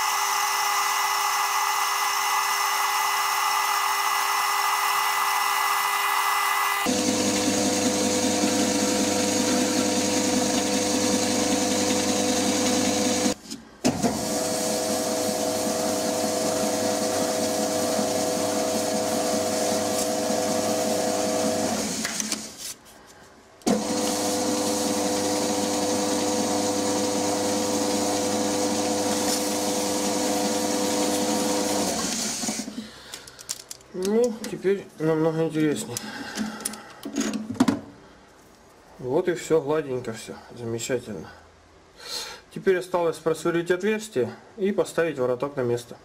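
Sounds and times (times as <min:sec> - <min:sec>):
metal lathe whining: 0:00.0 - 0:13.4, 0:14.1 - 0:22.1, 0:23.7 - 0:32.7.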